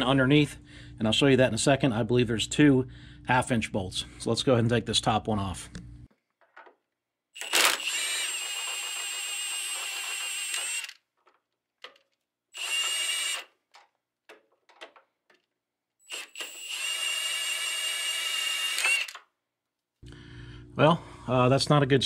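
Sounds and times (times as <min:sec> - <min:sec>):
small clicks and knocks: 0:06.3 - 0:06.8, 0:10.6 - 0:12.3, 0:13.4 - 0:15.6
power tool whining: 0:07.4 - 0:11.0, 0:12.6 - 0:13.6, 0:16.0 - 0:19.2.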